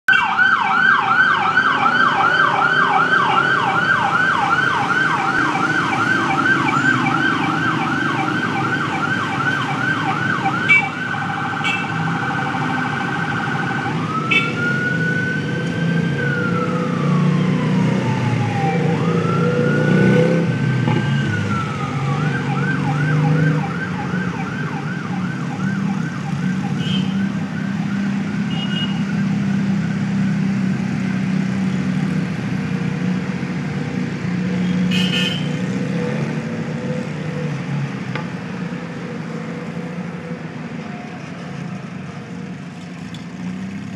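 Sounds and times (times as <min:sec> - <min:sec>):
electronic siren: 0:00.1 - 0:30.0
motorcycle engines passing: 0:00.7 - 0:43.9.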